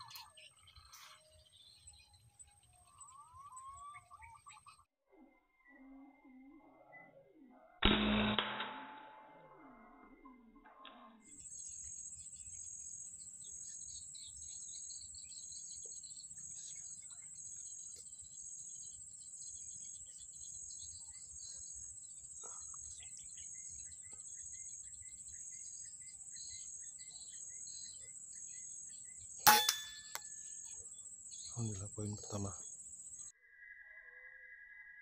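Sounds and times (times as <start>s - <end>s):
faint bird chirps: 0.0s - 7.9s, 9.2s - 35.0s
loud rifle shot: 7.8s - 9.1s.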